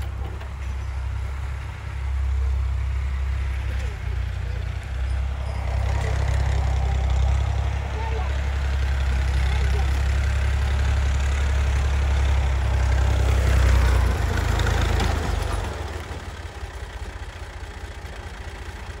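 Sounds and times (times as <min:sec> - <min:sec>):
engine droning: 0:00.0 - 0:19.0.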